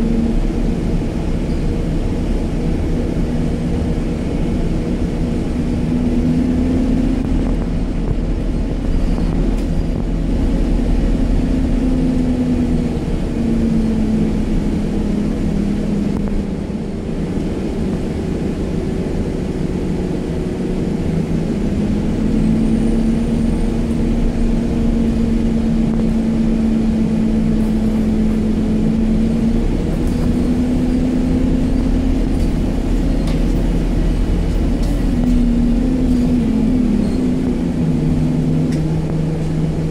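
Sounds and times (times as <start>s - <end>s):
bus engine drone: 0.0s - 39.9s
road and tyre rumble: 0.0s - 39.9s.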